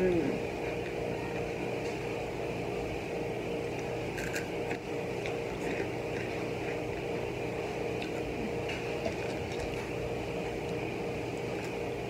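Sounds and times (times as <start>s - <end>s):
background hum: 0.0s - 12.0s
snacks crackling and crunching: 3.0s - 11.9s.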